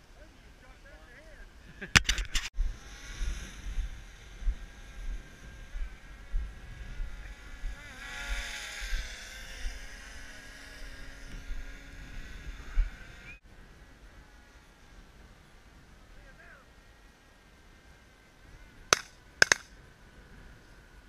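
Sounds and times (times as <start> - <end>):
wind rumbling on microphone: 1.4 - 16.2.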